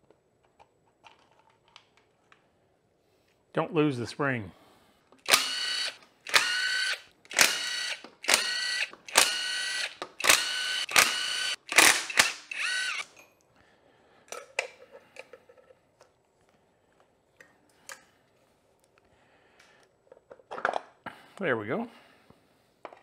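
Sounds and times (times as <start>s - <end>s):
cordless drill whirring: 5.2s - 13.1s.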